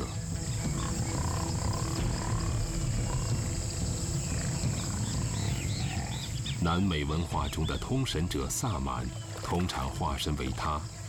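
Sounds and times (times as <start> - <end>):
jaguar growling: 0.6 - 6.5.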